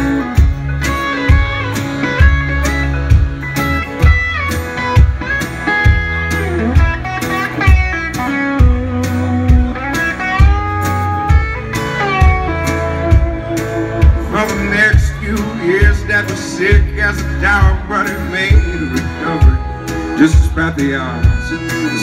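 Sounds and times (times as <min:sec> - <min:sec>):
acoustic guitar: 0:00.0 - 0:22.0
bass guitar: 0:00.0 - 0:22.0
electric guitar lead: 0:00.0 - 0:22.0
steady drum beat: 0:00.0 - 0:22.0.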